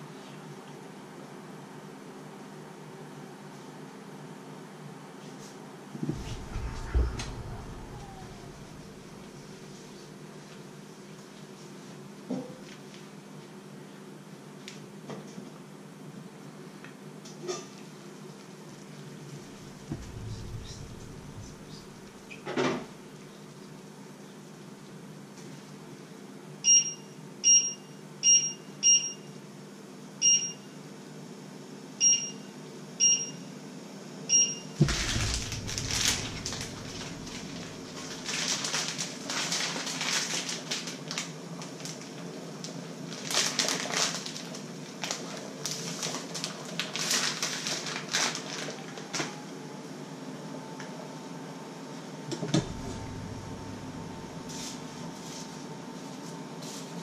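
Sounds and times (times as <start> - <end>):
plastic packet crinkling: 37.3 - 42.2, 43.1 - 49.1.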